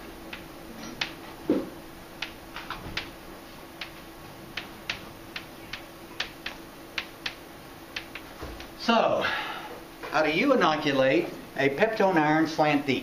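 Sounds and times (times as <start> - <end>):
chalk tapping on chalkboard: 8.0 - 8.7.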